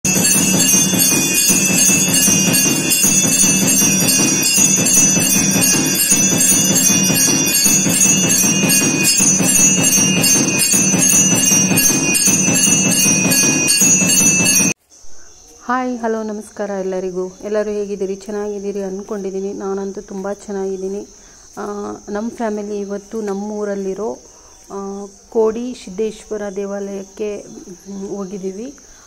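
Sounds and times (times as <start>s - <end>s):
temple bells ringing rapidly: 0.0s - 14.8s.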